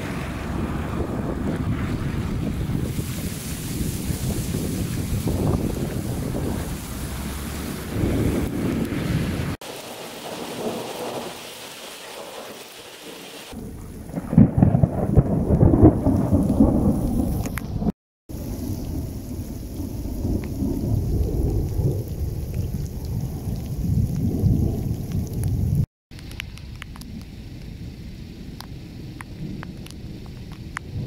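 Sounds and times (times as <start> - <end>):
low rumbling thunder: 0.0 - 11.4, 13.5 - 25.9
rain hissing: 0.0 - 31.0.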